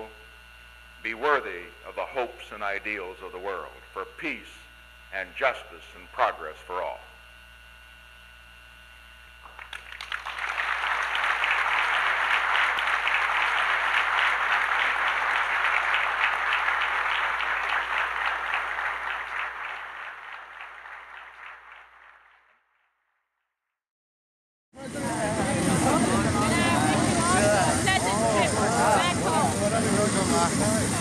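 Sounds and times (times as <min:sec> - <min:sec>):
low mains hum: 0:00.0 - 0:22.2
audience applauding: 0:09.4 - 0:22.5.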